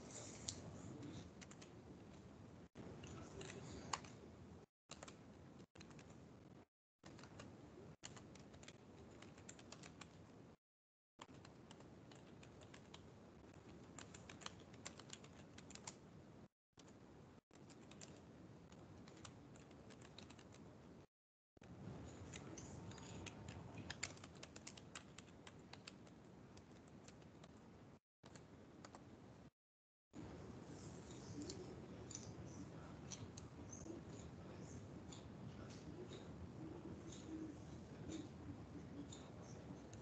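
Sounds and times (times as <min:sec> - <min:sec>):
typing on computer keyboard: 0:04.9 - 0:06.2, 0:07.0 - 0:10.2, 0:11.2 - 0:16.0, 0:17.6 - 0:20.6, 0:22.3 - 0:27.6.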